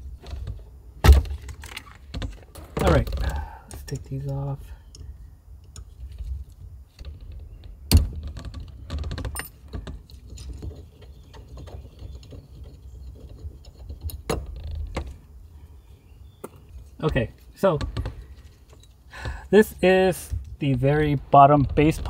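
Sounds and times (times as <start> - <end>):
metal parts clicking and rattling: 17.9 - 19.1.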